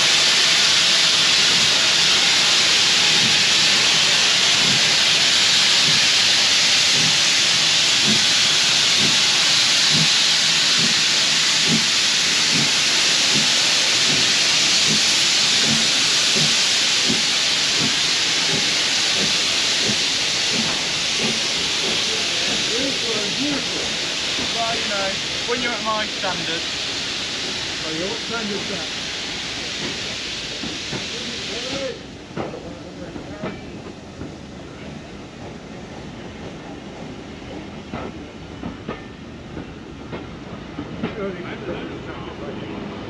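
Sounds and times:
locomotive steam hissing: 0.0 - 43.0.

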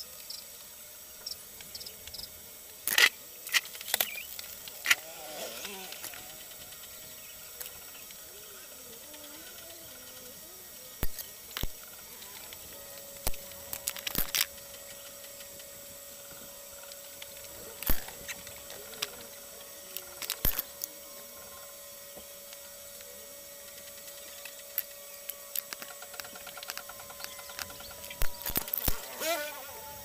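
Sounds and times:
faint hum: 0.0 - 30.0
steady hiss: 0.0 - 30.0.

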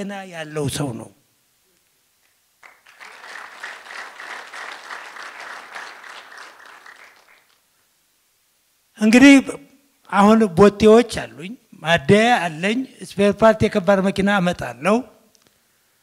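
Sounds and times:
audience applauding: 2.6 - 7.7.

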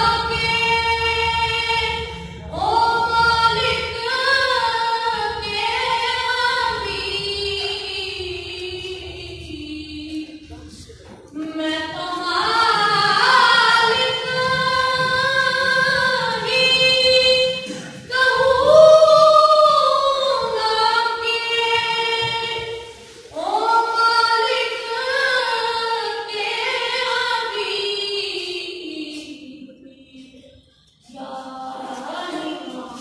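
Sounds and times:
boy singing unaccompanied: 0.0 - 22.8.

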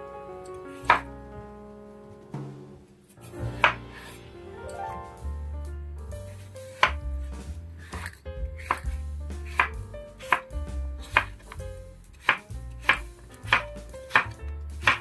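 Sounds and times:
background music: 0.0 - 15.0
knife chopping on cutting board: 0.8 - 1.1, 6.8 - 7.1, 7.8 - 11.6, 12.2 - 15.0.

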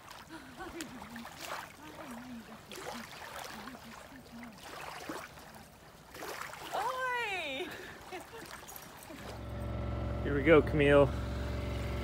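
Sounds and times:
water lapping on pebbly beach: 0.0 - 9.5.

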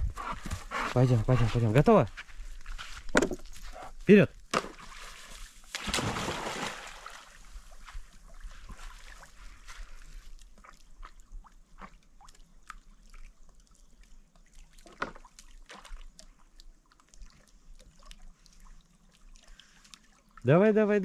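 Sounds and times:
dog paddling in water: 4.6 - 20.4.

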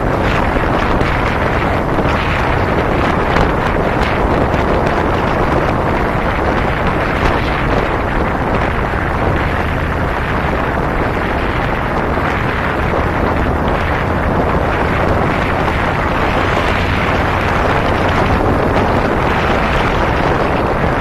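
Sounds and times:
motorcycle engine: 0.0 - 21.0
road noise: 0.0 - 21.0
wind rushing over microphone: 0.0 - 21.0.

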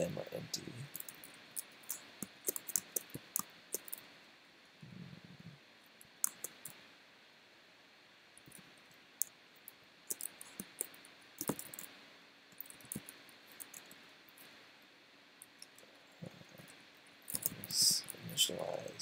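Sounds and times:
computer keyboard typing: 0.8 - 4.0, 6.2 - 6.8, 10.1 - 11.9, 12.6 - 14.0, 17.3 - 19.0.

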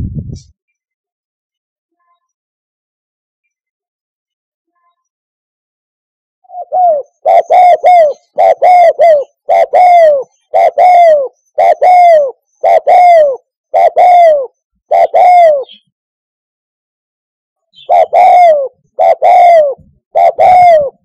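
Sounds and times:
dove cooing: 6.5 - 15.8, 17.8 - 21.0.

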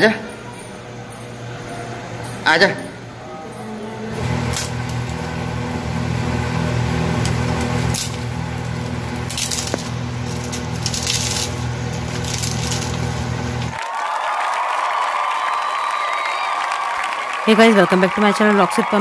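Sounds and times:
steady low hum: 0.0 - 13.8
fried dough crackling and crunching: 6.9 - 13.8.

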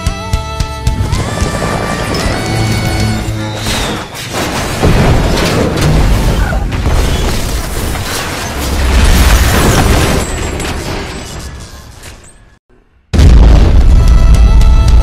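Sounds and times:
deep explosion booms: 13.1 - 14.4.

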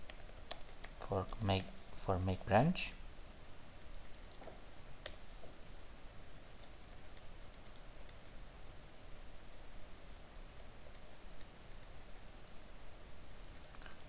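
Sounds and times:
keyboard keys clicking: 0.0 - 1.4.

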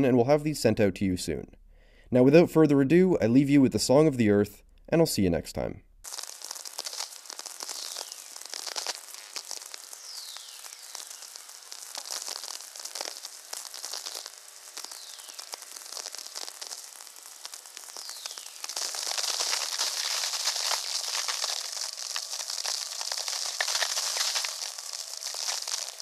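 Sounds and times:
high hiss: 6.0 - 26.0
radio static crackle: 6.0 - 26.0
falling radio whistles: 9.9 - 11.6.

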